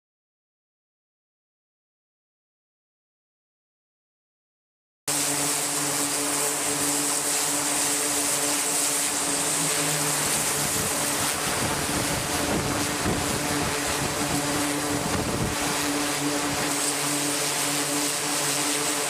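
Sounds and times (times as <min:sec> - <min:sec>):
propeller aircraft engines droning: 0:05.1 - 0:19.0
strong high hiss: 0:05.1 - 0:19.0.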